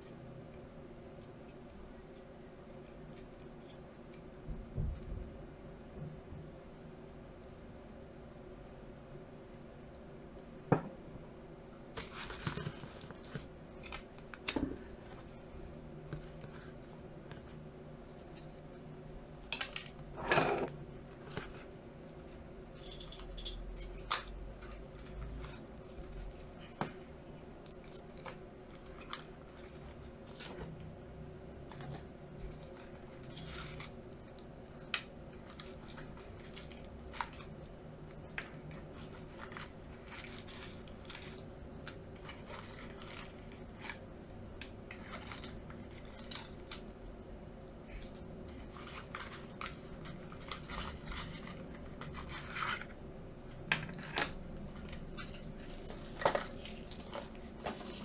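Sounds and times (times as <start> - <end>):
steady low hum: 0.0 - 58.0
paper wrapping rustling and tearing: 11.9 - 14.6, 27.8 - 30.8, 32.4 - 44.1, 44.9 - 46.9, 48.0 - 53.0, 53.9 - 58.0.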